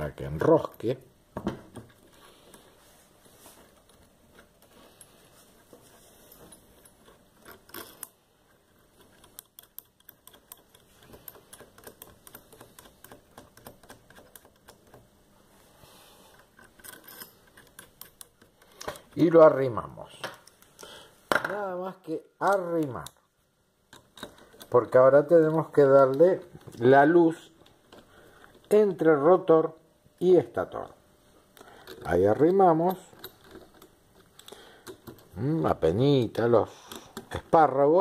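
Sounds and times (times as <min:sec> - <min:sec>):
small metal bolts clicking: 0:06.5 - 0:15.1, 0:16.4 - 0:19.2, 0:31.6 - 0:35.4.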